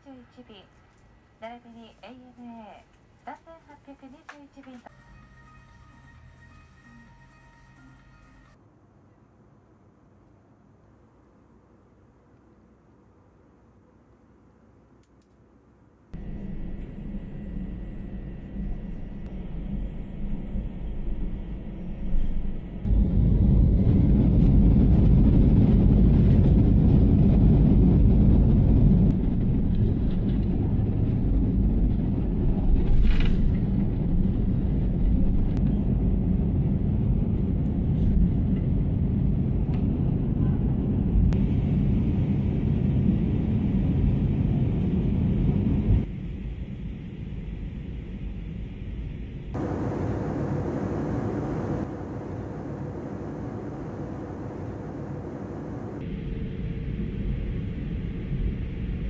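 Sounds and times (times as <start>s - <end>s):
jet engines rumbling in cabin: 16.1s - 59.0s.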